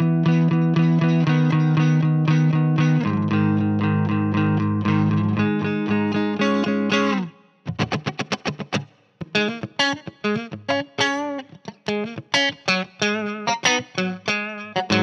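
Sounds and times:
electric guitar playing: 0:00.0 - 0:15.0.

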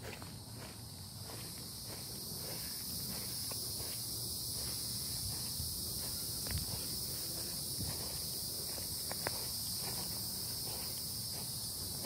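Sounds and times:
crickets and cicadas chirping: 0:00.0 - 0:12.0
faint footsteps on grass: 0:00.0 - 0:12.0.

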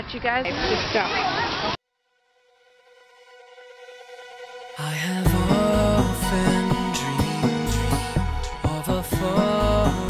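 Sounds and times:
music with held notes and beat: 0:04.8 - 0:10.0.

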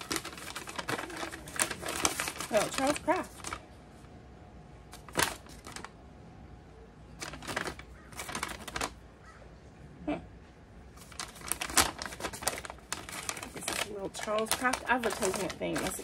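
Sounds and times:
paper and cloth crinkling: 0:00.0 - 0:04.1, 0:04.9 - 0:06.0, 0:07.2 - 0:09.0, 0:10.9 - 0:16.0.

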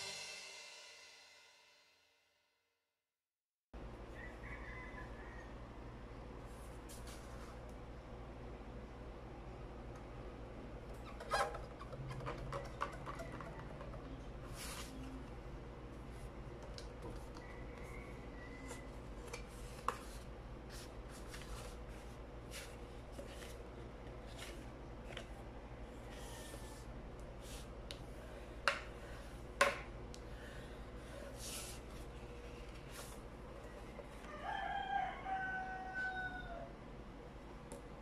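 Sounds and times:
card paper rustling and sliding: 0:14.5 - 0:15.2, 0:18.7 - 0:23.6.

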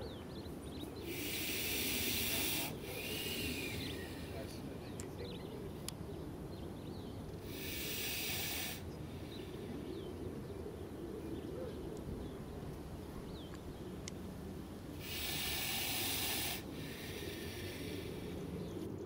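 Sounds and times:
snake hissing: 0:01.0 - 0:04.6, 0:07.4 - 0:09.6, 0:14.9 - 0:18.7.

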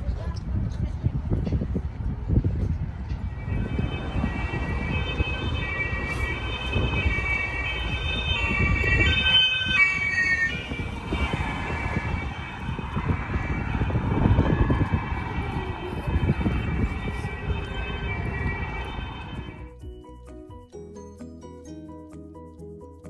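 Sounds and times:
road traffic rumble: 0:00.0 - 0:20.7
two-tone siren: 0:03.1 - 0:19.7.

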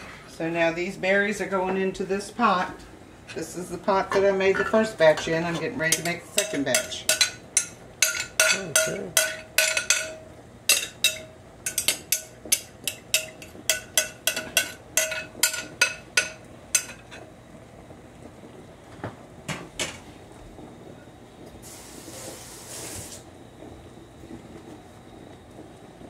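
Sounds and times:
metal spoon clinking on glass bowl: 0:05.9 - 0:17.0.

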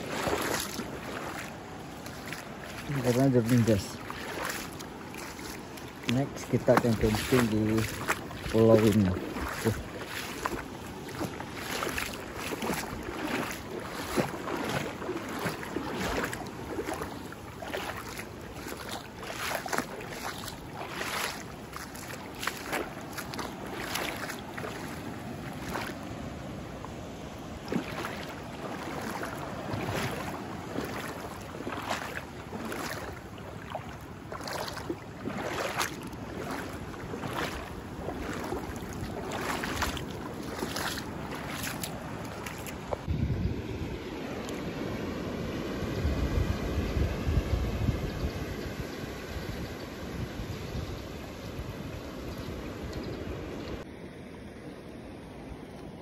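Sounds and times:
seawater splashing among rocks: 0:00.0 - 0:43.1
steady wash of water: 0:00.0 - 0:49.3.

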